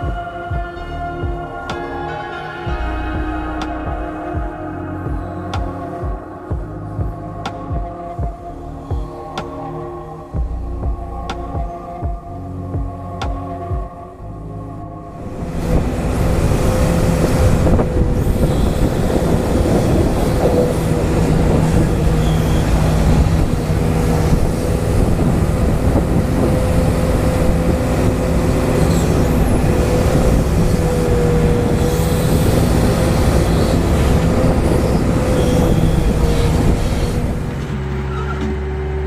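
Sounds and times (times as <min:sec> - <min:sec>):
hydraulic pump whine: 0:02.7 - 0:39.0
excavator digging: 0:15.2 - 0:39.0.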